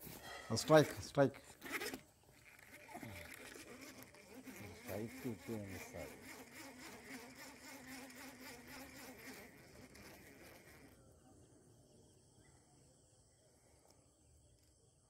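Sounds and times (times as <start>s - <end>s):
fishing reel whirring: 0.6s - 11.0s.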